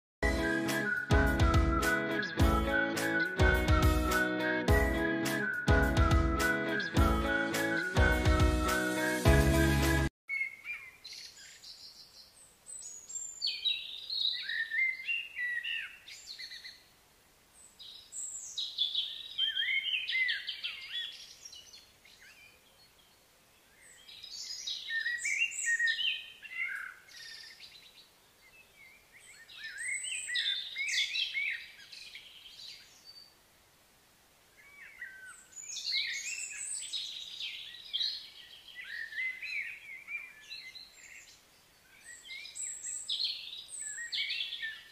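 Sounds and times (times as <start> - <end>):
faint outdoor background noise: 10.3 - 44.9.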